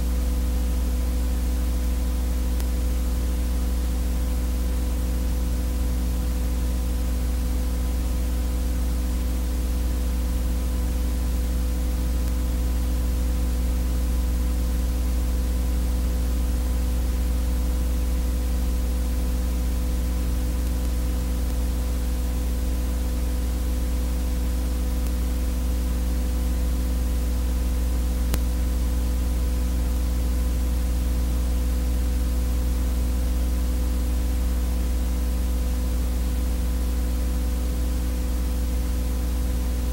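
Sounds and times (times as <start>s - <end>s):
constant hiss: 0.0s - 39.9s
mains hum: 0.0s - 39.9s
faint click: 2.5s - 2.8s, 12.0s - 12.5s, 25.0s - 25.4s, 28.2s - 28.6s.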